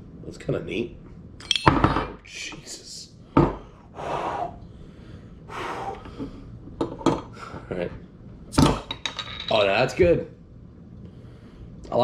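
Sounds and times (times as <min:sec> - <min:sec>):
ringing metallic clink: 0:01.4 - 0:02.0
breathy exhales: 0:03.6 - 0:06.6.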